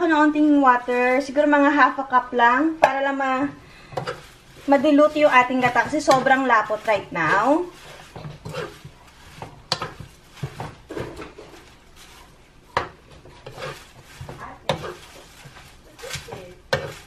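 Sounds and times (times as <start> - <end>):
spatula scraping a metal pan: 3.8 - 17.0.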